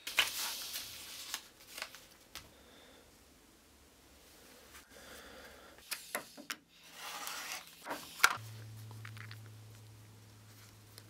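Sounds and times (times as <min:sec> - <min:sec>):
faint low hum: 0:08.0 - 0:11.0.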